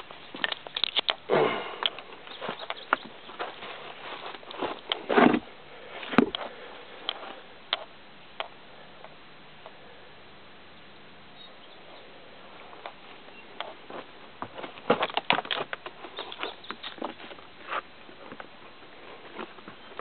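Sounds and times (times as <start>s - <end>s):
faint steady hiss: 0.0s - 20.0s
footsteps on dry leaves and rock: 2.0s - 6.6s, 12.5s - 20.0s.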